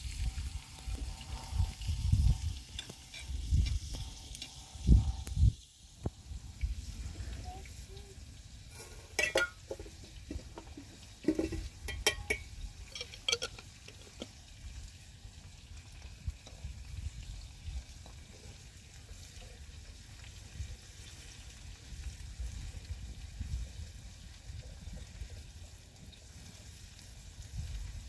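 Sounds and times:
cookware clinking and knocking: 9.2s - 10.4s, 11.2s - 14.3s.

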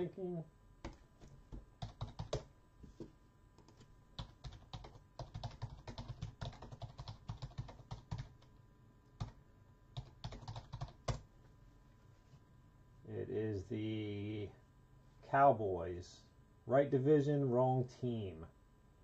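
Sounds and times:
typing on computer keyboard: 1.8s - 2.5s, 3.6s - 8.5s, 10.0s - 11.2s.

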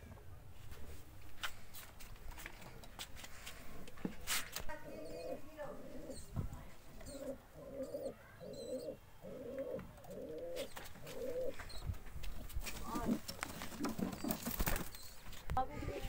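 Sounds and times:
pigeon cooing: 4.7s - 11.8s.

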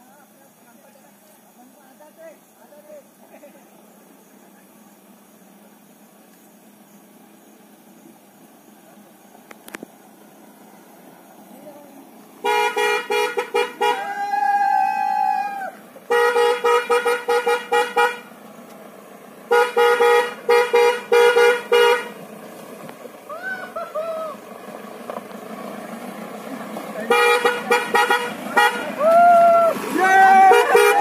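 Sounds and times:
car horn tooting: 12.4s - 14.1s, 16.1s - 18.3s, 19.5s - 22.2s, 27.0s - 29.0s, 30.1s - 31.0s
person whooping: 13.9s - 15.8s, 23.3s - 24.4s, 28.9s - 31.0s.

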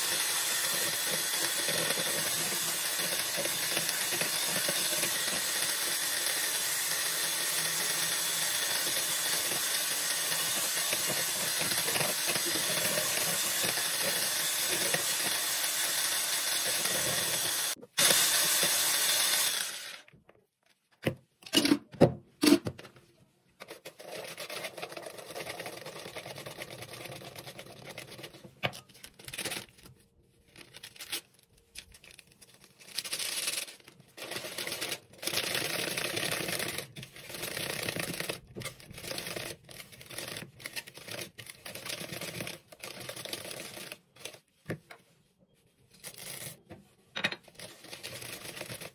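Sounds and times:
electric blender whisking: 0.0s - 20.1s, 23.8s - 28.5s, 34.2s - 44.4s, 47.5s - 48.9s.

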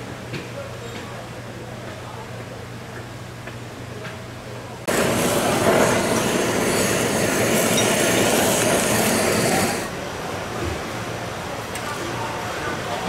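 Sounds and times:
low kitchen hum: 0.0s - 10.0s
fish sizzling on a griddle: 4.9s - 9.9s.

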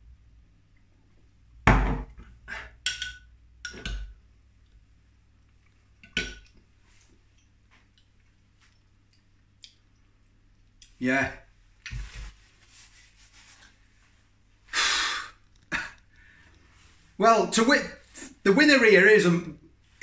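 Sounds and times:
cutlery and dishes clattering: 2.8s - 4.1s.

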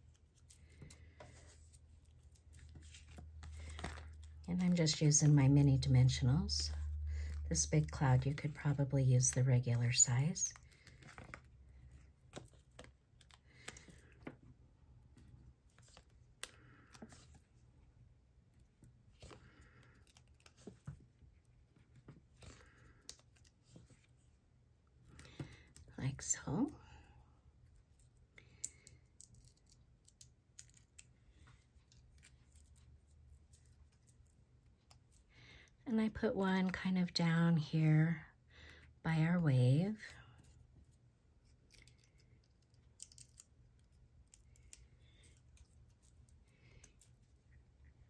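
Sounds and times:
card rustling: 0.0s - 5.4s.

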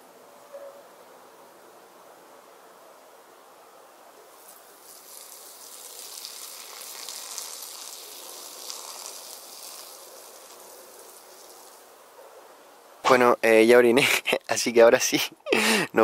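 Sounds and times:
person urinating into bushes: 4.3s - 11.9s.

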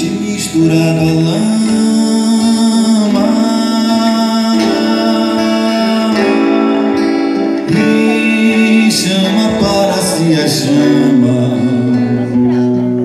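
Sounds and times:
acoustic guitar: 0.0s - 13.0s
man singing: 0.0s - 13.0s.

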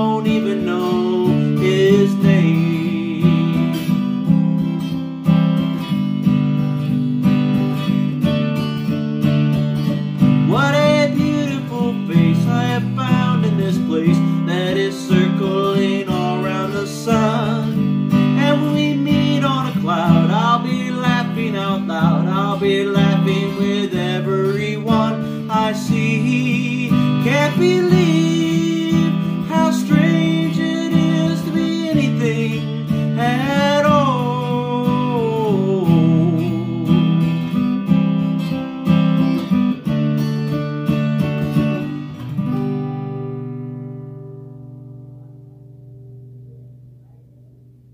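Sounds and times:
wordless vocal melody: 0.0s - 4.6s, 9.9s - 38.2s
acoustic guitar strumming: 0.0s - 47.9s.

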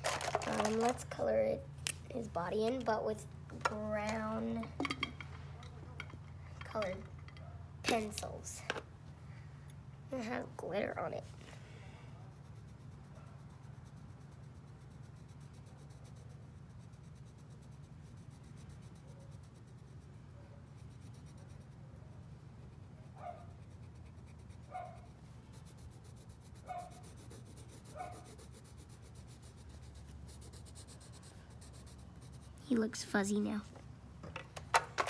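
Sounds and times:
pencil scratching on paper: 12.3s - 33.0s.

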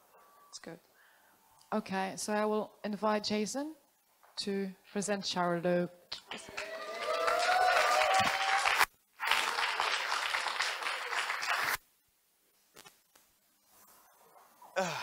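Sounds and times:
audience applauding: 6.3s - 11.8s.

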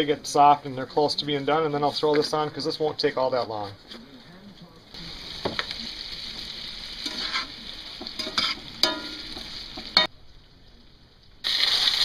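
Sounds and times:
potatoes sizzling in a skillet: 4.9s - 10.2s, 11.4s - 12.0s
spatula scraping a pan: 7.0s - 10.1s.

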